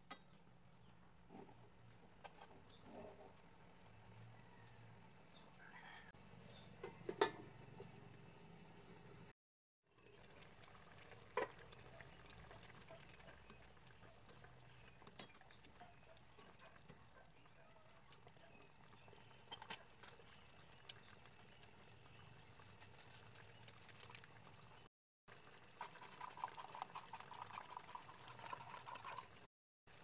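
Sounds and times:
sauce bubbling in a pan: 6.8 - 30.0.

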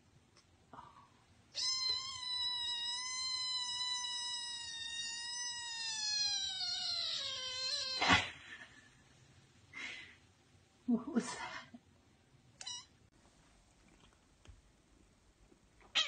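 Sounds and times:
kitten meowing: 1.6 - 8.2, 12.6 - 12.9.

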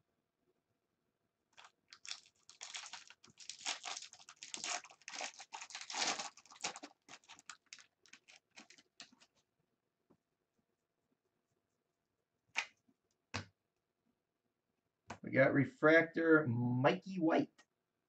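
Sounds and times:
foil wrapper crinkling: 1.6 - 9.4.

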